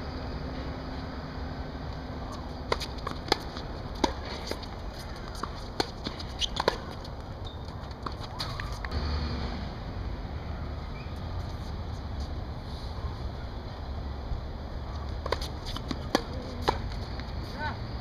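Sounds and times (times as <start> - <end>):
tennis ball hits and bounces: 2.2 - 9.0, 15.2 - 17.4.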